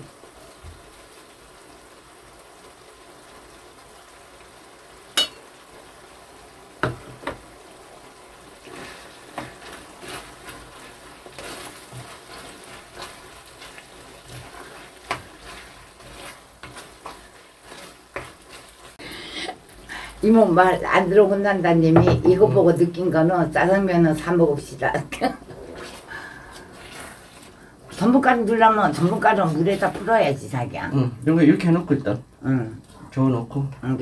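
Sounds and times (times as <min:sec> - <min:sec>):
food sizzling in a frying pan: 0:00.0 - 0:34.0
spoon knocking on pan: 0:05.2 - 0:05.5, 0:06.8 - 0:07.4, 0:21.9 - 0:22.5
wooden spoon scraping pan: 0:08.6 - 0:19.0, 0:24.9 - 0:30.5.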